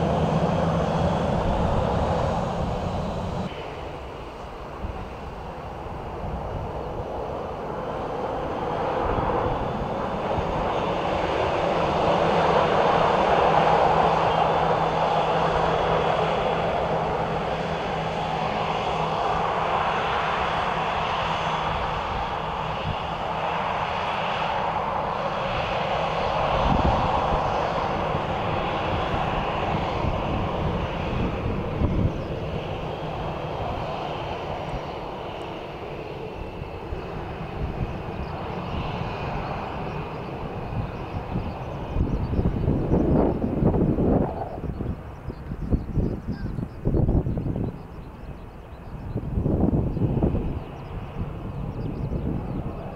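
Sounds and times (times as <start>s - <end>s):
jet engine roar: 0.0s - 52.9s
steady low hum: 0.0s - 52.9s.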